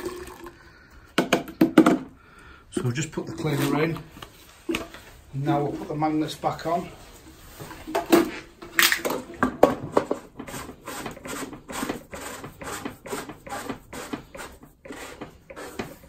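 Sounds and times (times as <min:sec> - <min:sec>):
hard plastic knocks: 0:01.2 - 0:02.1.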